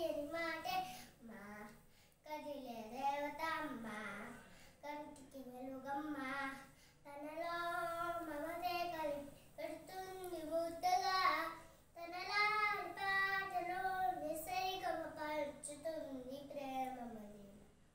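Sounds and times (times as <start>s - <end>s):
boy singing unaccompanied: 0.0s - 17.5s.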